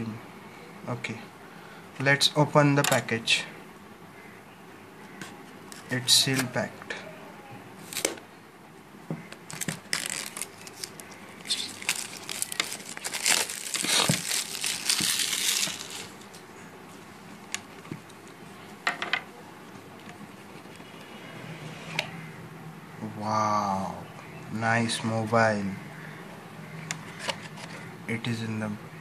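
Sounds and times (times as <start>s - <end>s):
plastic wrap tearing and crinkling: 9.4s - 16.4s.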